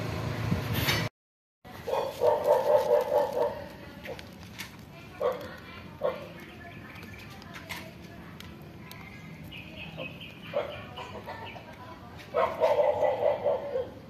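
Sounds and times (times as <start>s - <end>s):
rapid yelping calls: 9.6s - 11.6s, 12.3s - 14.0s.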